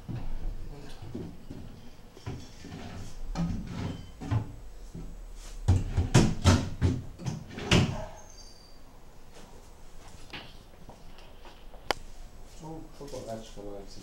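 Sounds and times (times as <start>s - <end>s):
wooden cabinet parts knocking: 0.0s - 8.1s.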